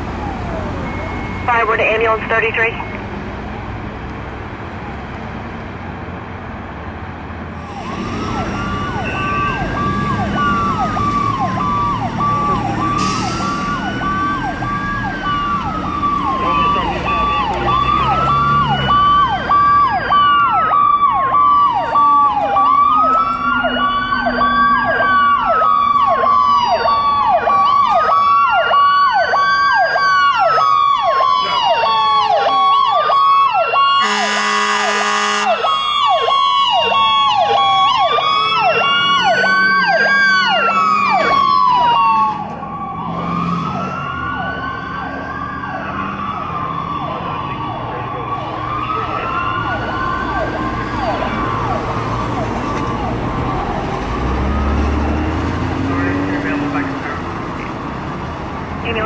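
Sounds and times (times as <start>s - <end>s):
siren slow wail: 0.0s - 3.0s, 7.5s - 59.0s
siren yelp sweeps: 0.0s - 3.0s, 7.5s - 57.9s
steady pulsing siren tone: 7.5s - 54.8s.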